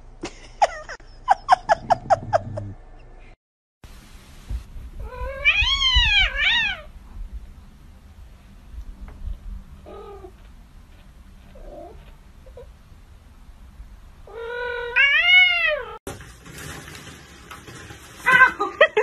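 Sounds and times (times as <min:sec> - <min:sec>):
cat meowing: 0:05.0 - 0:06.9, 0:14.3 - 0:16.0
cats squabbling with sharp cries: 0:05.0 - 0:06.9.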